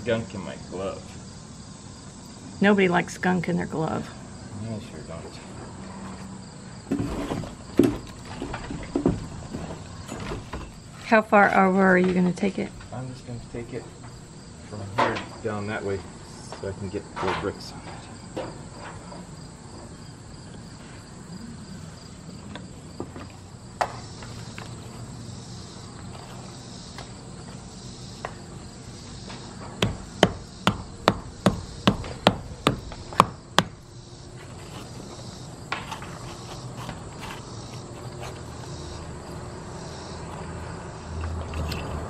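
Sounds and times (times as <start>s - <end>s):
insects droning: 0.0s - 42.0s.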